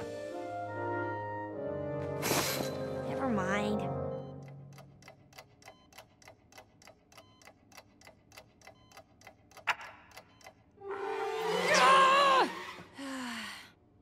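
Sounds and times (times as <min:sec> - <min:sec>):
clock ticking: 0:04.2 - 0:10.7.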